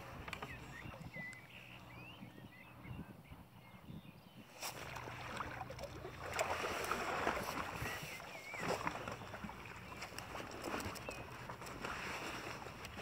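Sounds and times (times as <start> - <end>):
water splashing and sloshing: 4.6 - 13.0.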